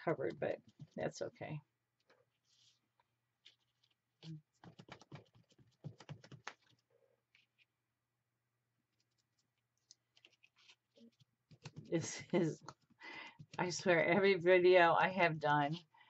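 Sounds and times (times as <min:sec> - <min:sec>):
sponge and stencil taps: 0:04.6 - 0:06.6.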